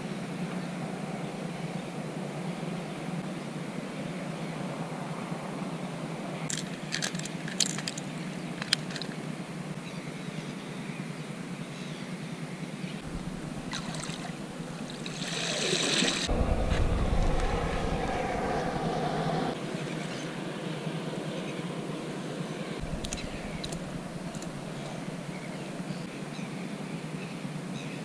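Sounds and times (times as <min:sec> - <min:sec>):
low background hum: 0:00.0 - 0:28.0
water splashing in a bucket: 0:13.6 - 0:16.3.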